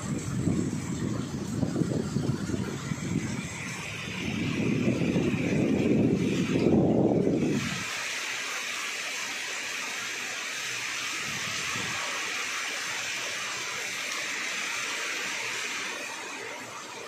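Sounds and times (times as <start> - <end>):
rain falling on foliage: 6.7 - 17.0.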